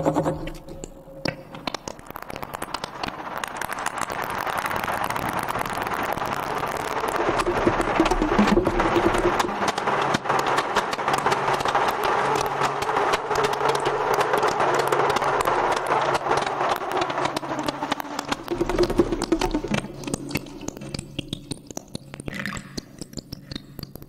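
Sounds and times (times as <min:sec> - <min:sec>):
rapid rattling clicks: 0:00.0 - 0:24.0
low steady drone: 0:04.6 - 0:21.7.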